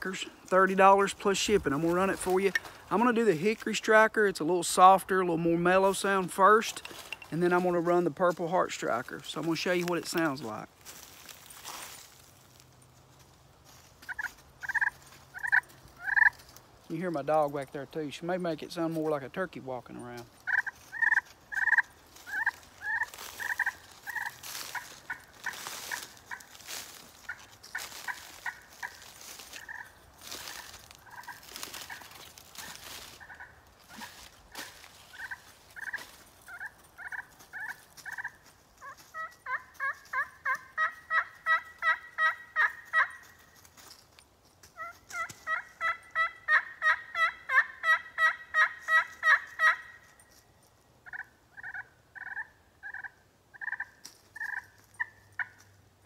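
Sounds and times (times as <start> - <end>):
loud turkey yelps: 14.0 - 16.4, 20.5 - 43.4, 44.8 - 50.1, 51.0 - 55.6.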